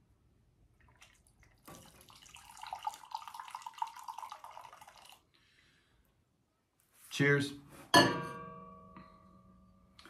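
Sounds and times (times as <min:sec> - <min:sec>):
liquid pouring into a mug: 0:00.8 - 0:05.3.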